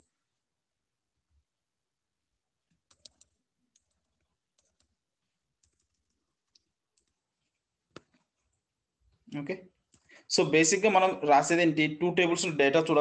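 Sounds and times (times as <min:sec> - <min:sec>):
computer keyboard keystrokes: 0:02.8 - 0:05.0, 0:05.6 - 0:07.2.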